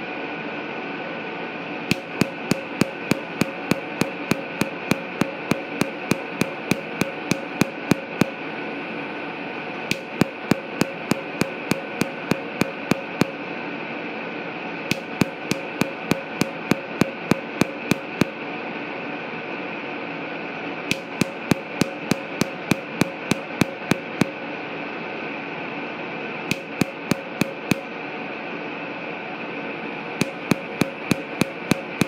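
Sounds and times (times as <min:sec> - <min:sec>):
steady hum: 0:01.7 - 0:13.9, 0:14.7 - 0:19.2, 0:20.7 - 0:25.3, 0:26.1 - 0:28.7, 0:29.3 - 0:32.0
laser firing sharp clicks: 0:01.9 - 0:08.4, 0:09.9 - 0:13.4, 0:14.9 - 0:18.4, 0:20.9 - 0:24.4, 0:26.5 - 0:27.9, 0:30.2 - 0:32.0.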